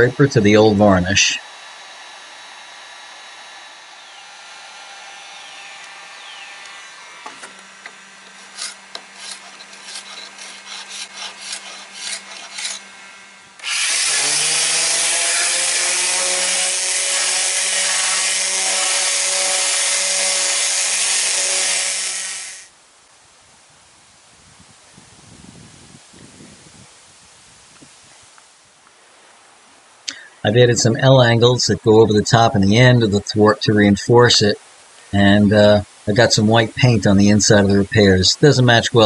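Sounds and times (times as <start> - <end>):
electric palm sander sanding: 0.0 - 22.7
heat gun humming: 0.0 - 22.7
scraper scraping varnish off wood: 8.2 - 12.9.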